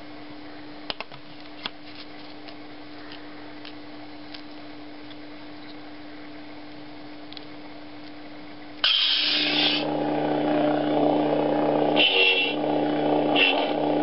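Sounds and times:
short bright bursts: 8.8 - 9.9
electric blade hum: 8.8 - 14.0
lightsaber ignition: 8.8 - 14.0.

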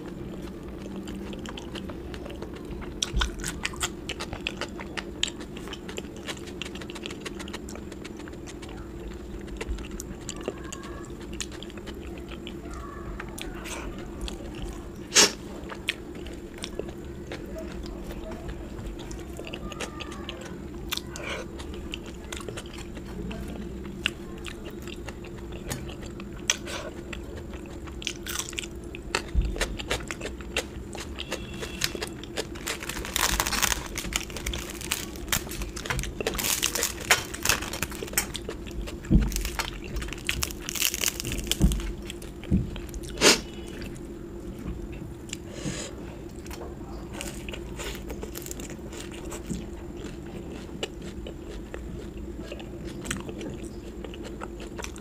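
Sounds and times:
person chewing: 0.0 - 44.0, 44.9 - 55.0
crunchy bites: 24.6 - 44.0, 46.4 - 55.0.

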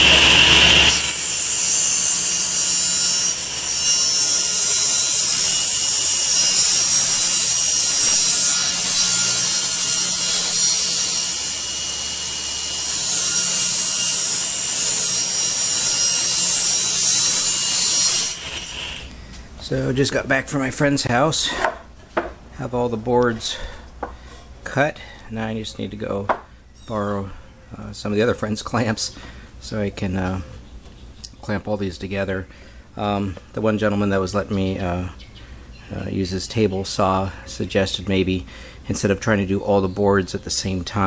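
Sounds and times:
table saw cutting wood: 0.0 - 19.1.

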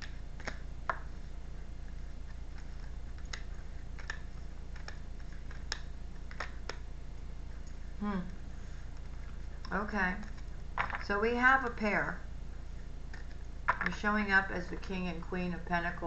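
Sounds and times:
cards clicking and snapping: 0.0 - 1.1, 2.3 - 6.9
steady low hum: 0.0 - 16.0.

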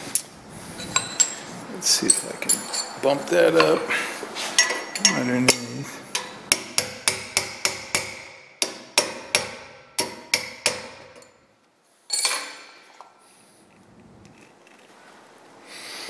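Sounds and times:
hammer striking metal punch: 4.6 - 11.4
scraping rustle: 13.3 - 15.6.

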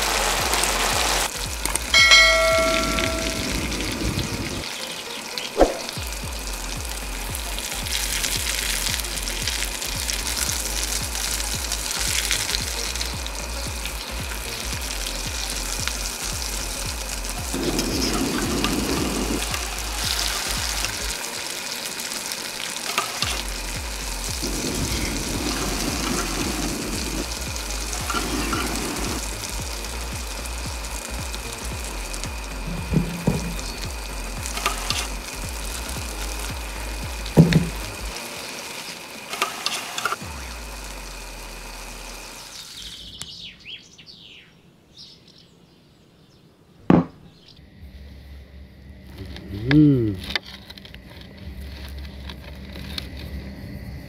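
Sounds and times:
patty sizzling in oil: 0.0 - 43.2
sharp knock: 5.6 - 5.9.

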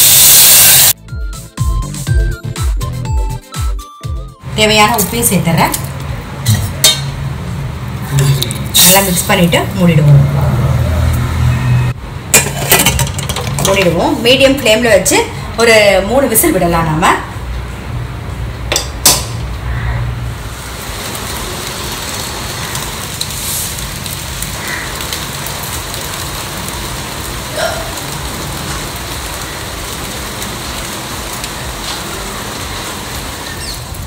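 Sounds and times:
rain splashing on concrete: 7.3 - 10.4, 19.2 - 34.0.

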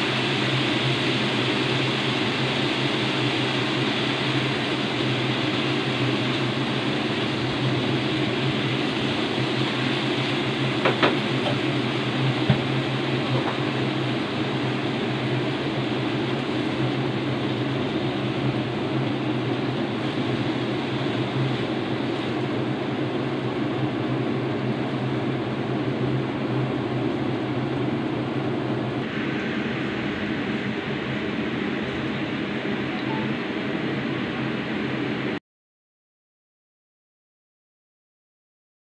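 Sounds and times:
food stir-frying in a wok: 0.0 - 35.4
kitchen exhaust fan whirring: 0.0 - 35.4
low hum: 26.7 - 35.4.

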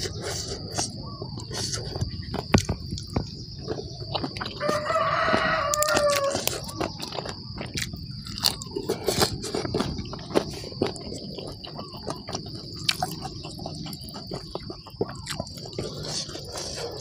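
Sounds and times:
chewing clicks: 0.0 - 17.0
high insect drone: 0.0 - 17.0
rooster crowing: 4.4 - 7.0.

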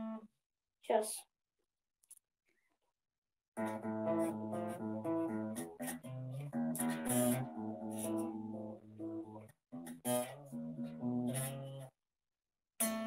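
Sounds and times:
electric guitar solo: 3.6 - 11.8.

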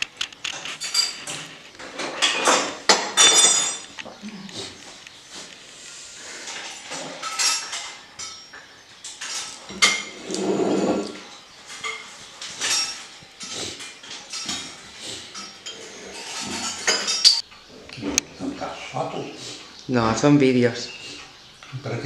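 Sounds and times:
china cup and saucer clinking: 15.4 - 17.4.

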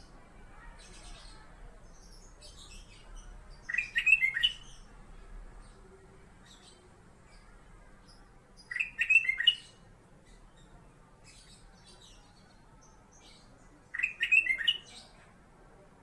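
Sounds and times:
bird whistled song phrases: 3.7 - 4.7, 8.7 - 9.7, 13.9 - 14.9.

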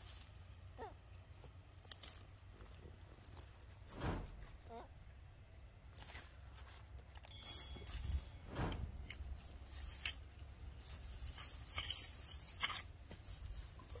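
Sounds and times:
leafy vegetation rustling and tearing: 9.0 - 14.0.

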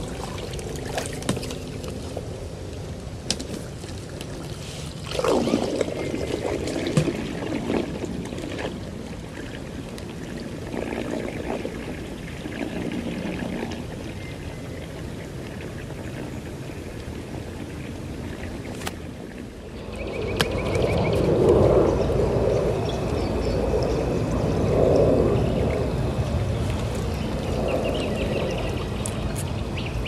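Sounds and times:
water trickling and lapping: 0.0 - 21.8, 25.6 - 30.0
water churning: 0.0 - 22.4.

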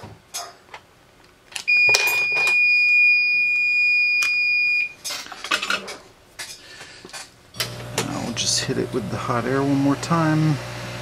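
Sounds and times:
high-pitched electronic beep: 1.7 - 4.9.

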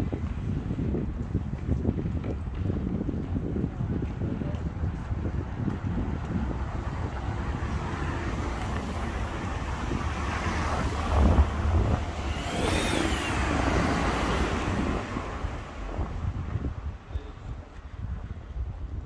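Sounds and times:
motor vehicle passing: 6.4 - 16.7
high tone rising and falling: 10.0 - 16.2.

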